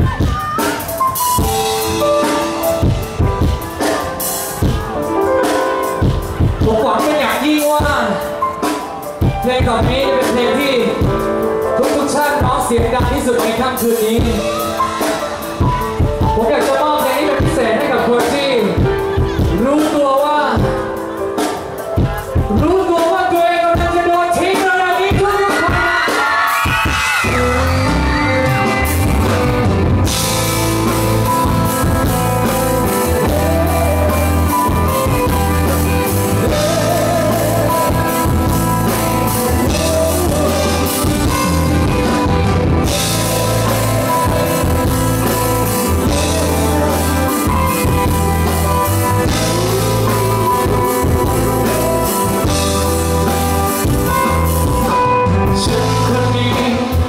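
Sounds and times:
drums and cymbals: 0.0s - 57.0s
live pop-rock band playing: 0.0s - 57.0s.

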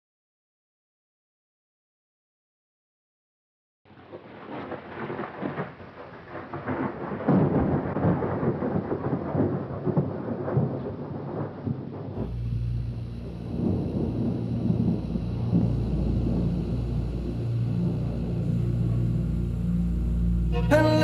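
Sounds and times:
rain: 3.9s - 21.0s
rolling thunder: 3.9s - 21.0s
steady low hum: 12.2s - 21.0s.

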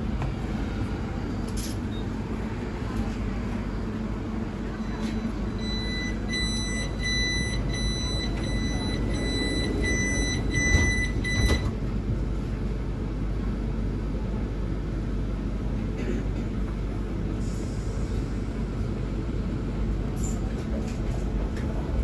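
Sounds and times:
train low hum: 0.0s - 22.0s
door warning beeps: 4.8s - 11.8s
train doors thudding shut: 10.4s - 11.9s.

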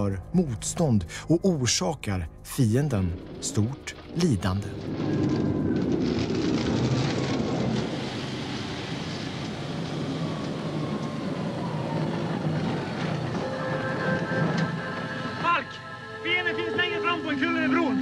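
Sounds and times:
vehicle engine driving: 2.8s - 15.4s
road noise on gravel: 3.6s - 15.6s.

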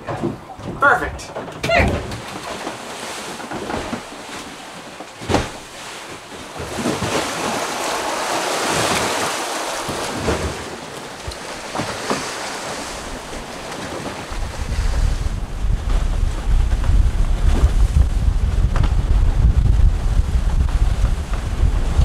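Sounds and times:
water splashing past a hull: 0.0s - 22.0s
wind on microphone: 6.6s - 22.0s.

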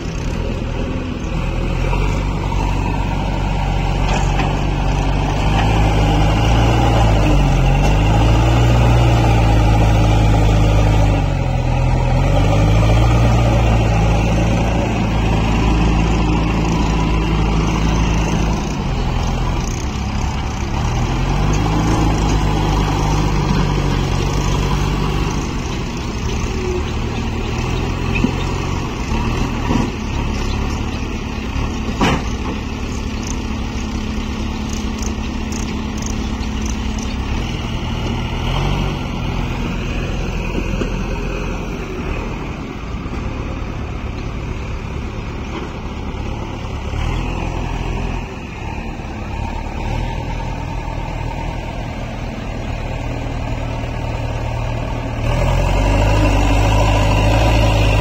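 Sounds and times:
diesel engine under load: 0.0s - 58.0s.

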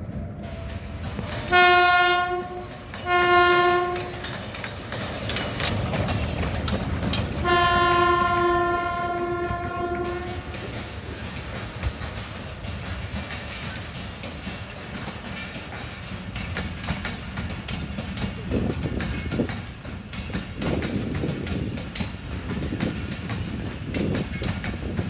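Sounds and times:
low rumble of passing train: 0.0s - 25.0s
locomotive horn blasts: 1.5s - 4.3s, 7.4s - 10.5s.

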